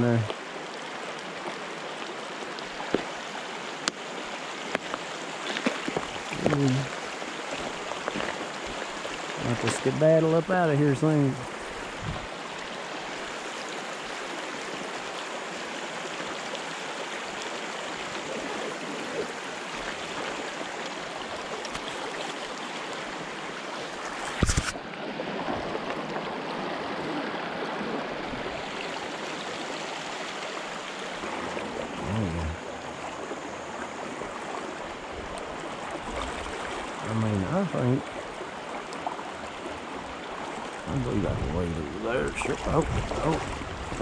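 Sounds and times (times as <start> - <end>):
river water rushing over rocks: 0.0 - 10.4, 11.1 - 37.1, 38.0 - 44.0.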